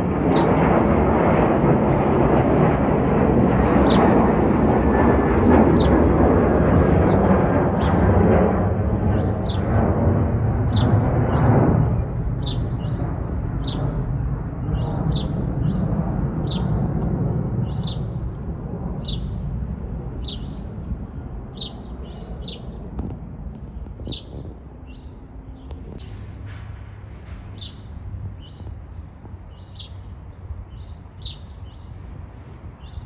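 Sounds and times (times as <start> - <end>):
jet airliner passing overhead: 0.0 - 33.0
bird chirping: 5.8 - 6.0, 9.1 - 9.7, 12.4 - 16.8, 17.6 - 18.2, 19.0 - 19.4, 20.0 - 26.4, 27.0 - 32.0.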